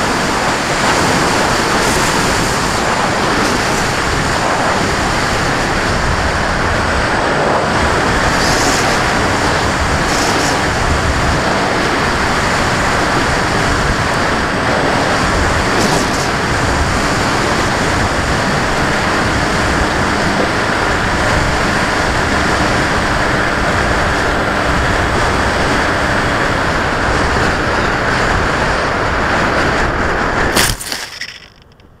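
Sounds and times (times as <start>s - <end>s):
wind and motor rushing: 0.0s - 31.7s.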